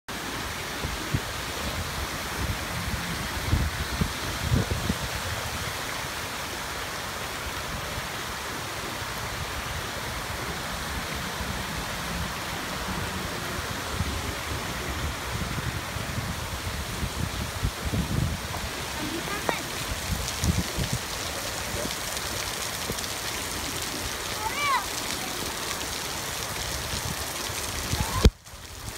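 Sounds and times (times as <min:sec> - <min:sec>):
heavy rain pouring: 0:00.1 - 0:28.9.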